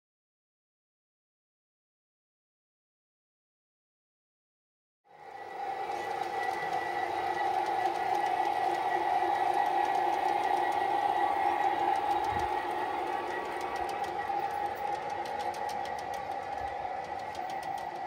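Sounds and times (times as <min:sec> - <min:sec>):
model train motor whine: 0:05.2 - 0:18.0
wheels clicking over rail joints: 0:05.8 - 0:18.0.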